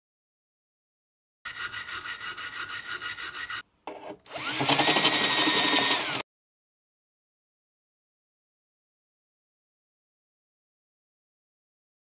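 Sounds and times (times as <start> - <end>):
small power tool spinning: 4.3 - 6.2.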